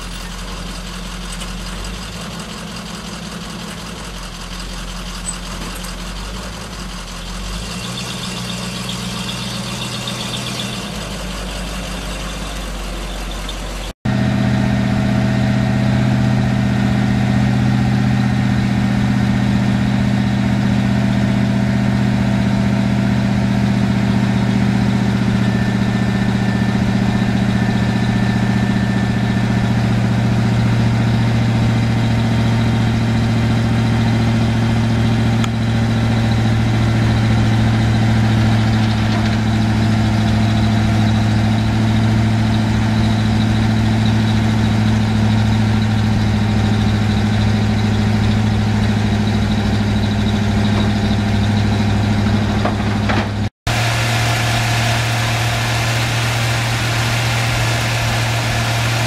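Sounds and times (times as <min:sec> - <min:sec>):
truck engine idling: 0:00.0 - 0:59.0.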